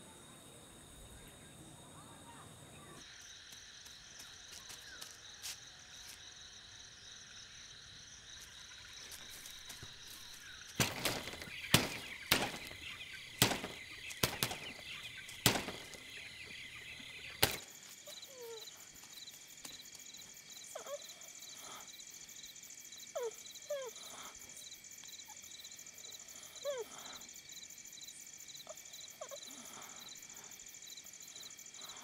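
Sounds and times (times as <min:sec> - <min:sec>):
crickets chirring: 0:00.0 - 0:32.0
sharp loud knocks: 0:10.8 - 0:16.2.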